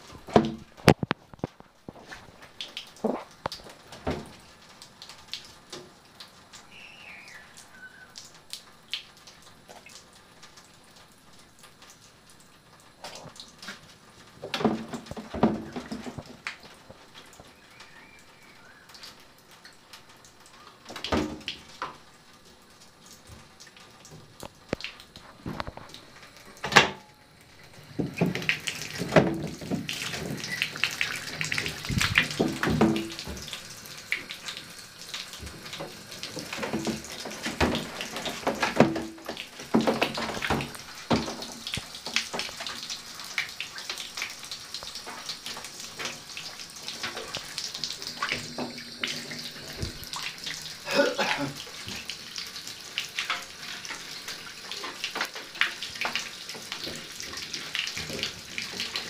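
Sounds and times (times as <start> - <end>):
water running from faucet: 2.0 - 59.0
knocks and bumps in tub: 14.4 - 16.4, 28.0 - 30.4, 31.9 - 33.5, 36.5 - 41.5
water splashing: 27.5 - 59.0.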